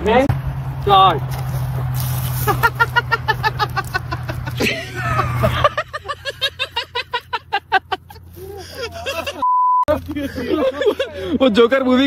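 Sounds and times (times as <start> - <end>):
men talking: 8.4 - 12.0
censor bleep: 9.4 - 9.9.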